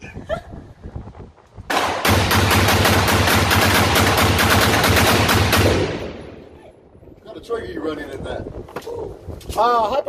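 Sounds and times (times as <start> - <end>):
rapid rifle gunshots echoing: 1.7 - 6.5.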